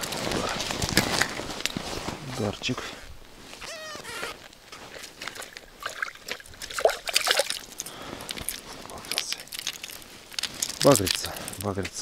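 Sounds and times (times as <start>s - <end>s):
water sloshing and dripping: 4.8s - 11.6s.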